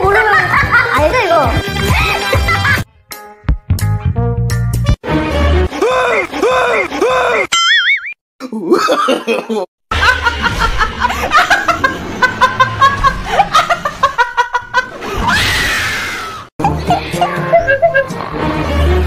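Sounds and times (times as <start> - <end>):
woman laughing hard: 8.7 - 15.2, 16.6 - 18.2.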